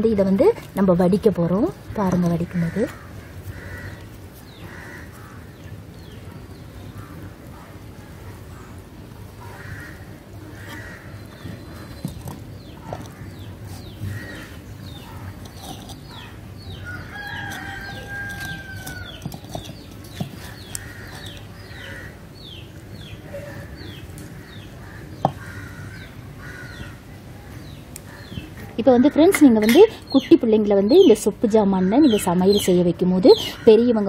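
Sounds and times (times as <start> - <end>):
birds chirping: 0.0 - 34.0
rooster crowing: 16.8 - 19.2
clay pots knocking: 18.3 - 21.4.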